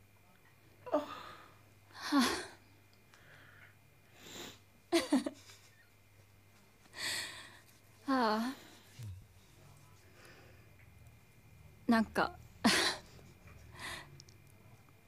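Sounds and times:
woman sobbing and sniffling: 12.6s - 14.1s.

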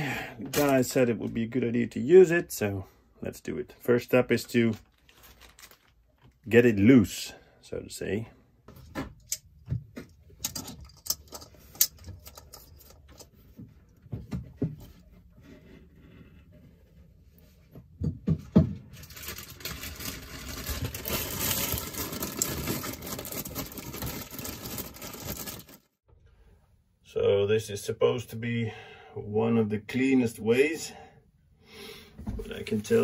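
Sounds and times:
foil bag rustling: 4.8s - 6.2s, 18.9s - 26.0s.

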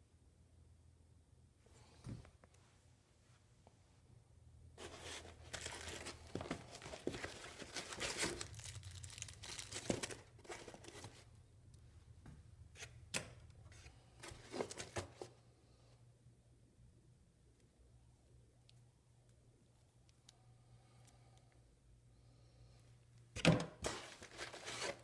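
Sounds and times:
packaging crinkling and rustling: 4.8s - 11.3s, 14.2s - 15.3s, 23.8s - 25.0s.

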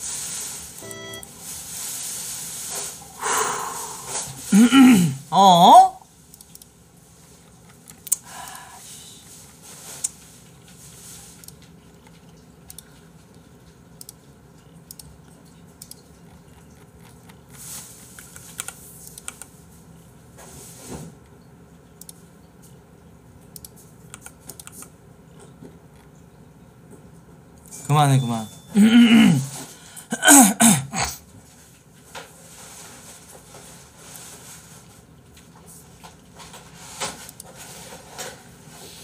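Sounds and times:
computer keyboard typing: 18.2s - 19.5s, 23.6s - 24.9s.

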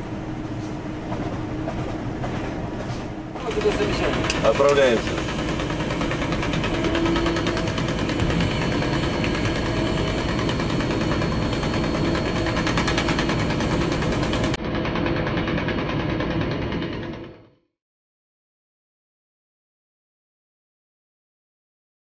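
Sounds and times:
diesel locomotive engine running: 0.0s - 17.6s.

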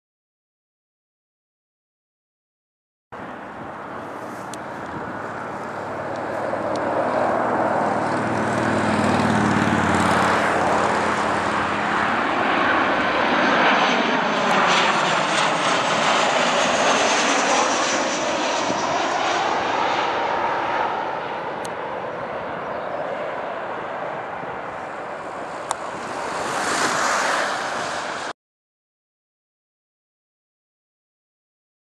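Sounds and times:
jet airliner roar passing: 3.2s - 28.4s.

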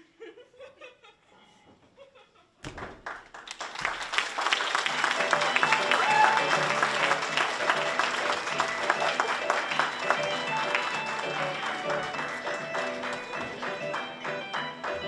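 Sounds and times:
audience applause: 2.8s - 15.0s
music playing: 4.8s - 15.0s.

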